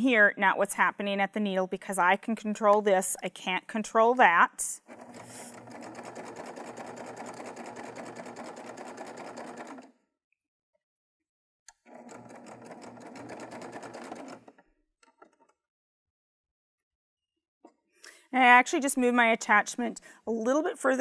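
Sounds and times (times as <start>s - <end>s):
serger stitching: 4.8s - 9.9s, 11.7s - 15.5s.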